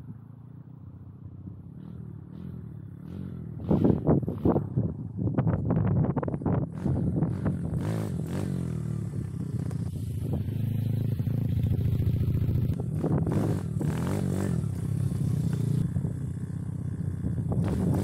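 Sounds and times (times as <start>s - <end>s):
dirt bike engine revving: 1.8s - 4.6s, 6.7s - 16.0s, 17.4s - 18.0s.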